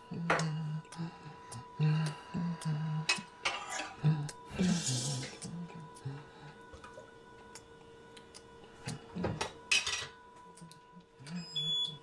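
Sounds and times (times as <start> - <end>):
faint steady hum: 0.0 - 12.0
utensils and dishes clinking: 3.1 - 4.0, 9.4 - 10.2.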